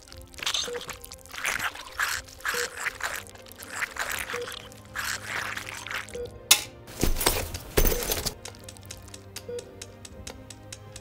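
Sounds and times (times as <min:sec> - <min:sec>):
wet squelching and dribbling: 0:00.0 - 0:06.3.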